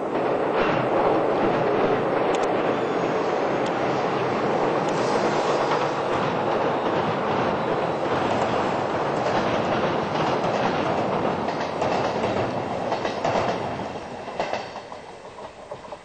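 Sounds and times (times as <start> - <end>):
train wheels clattering on bridge: 3.7 - 16.0.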